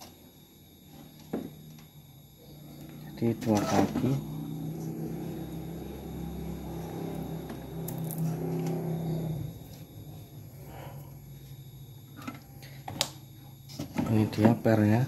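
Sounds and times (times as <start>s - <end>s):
low engine hum: 4.1s - 10.2s.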